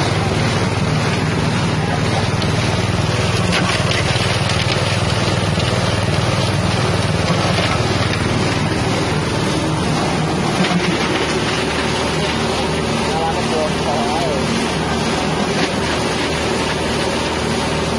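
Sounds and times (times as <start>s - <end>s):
grinding mill engine running: 0.0s - 17.9s.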